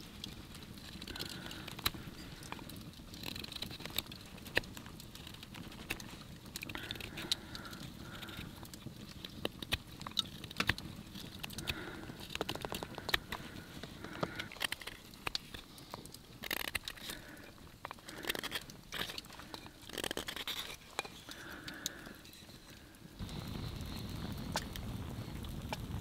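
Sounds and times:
knife scraping wood: 18.2s - 21.3s.

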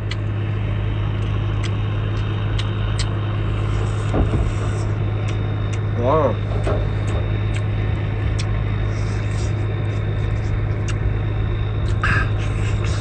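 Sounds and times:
low engine-like drone: 0.0s - 13.0s
chewing clicks: 1.2s - 3.1s, 10.8s - 11.0s.

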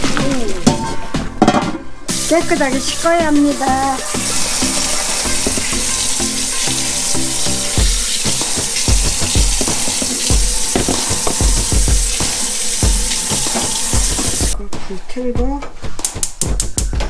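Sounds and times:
background music with low beat: 0.0s - 17.0s
tap water running into sink: 2.1s - 14.6s.

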